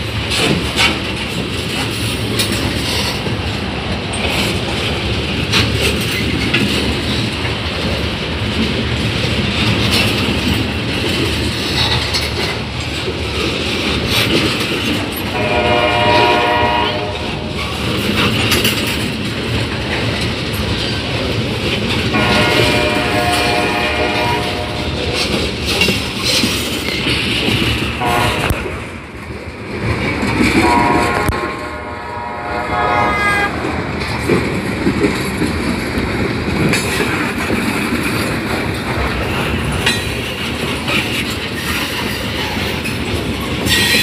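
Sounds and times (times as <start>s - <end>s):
train wheels rumbling and clacking: 0.0s - 44.0s
diesel locomotive horn blasts: 15.3s - 17.9s, 22.1s - 25.4s, 28.0s - 28.8s, 30.4s - 33.9s.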